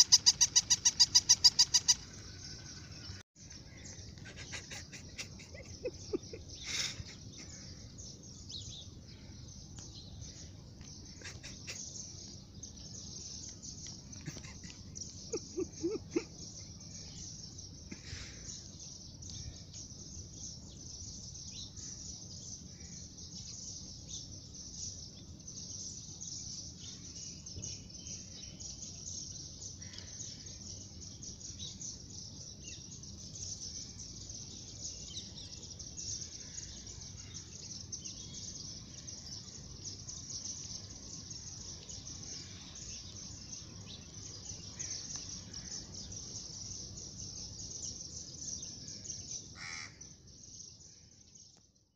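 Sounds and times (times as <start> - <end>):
bird chirps: 0.0 - 22.7.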